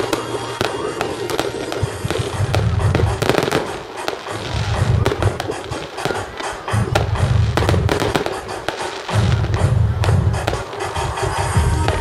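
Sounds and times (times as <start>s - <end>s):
fireworks bangs and crackles: 0.0s - 12.0s
music playing: 0.0s - 12.0s.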